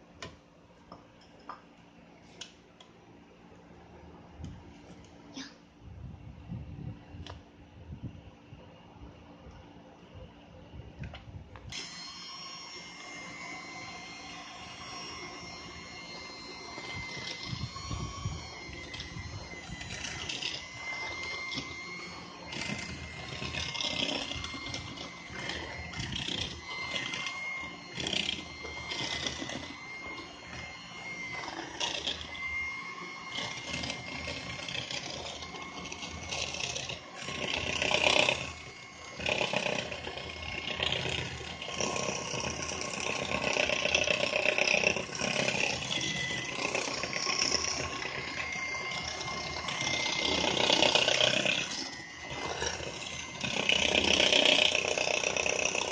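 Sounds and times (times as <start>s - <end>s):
electric hand mixer whine: 11.7s - 55.9s
mixer beaters rattling: 11.7s - 55.9s.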